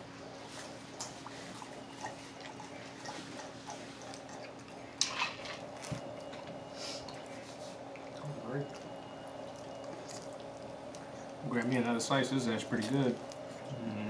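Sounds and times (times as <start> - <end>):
chewing chicken wings: 0.0 - 6.3, 7.0 - 11.7
faint steady hum: 0.0 - 14.0.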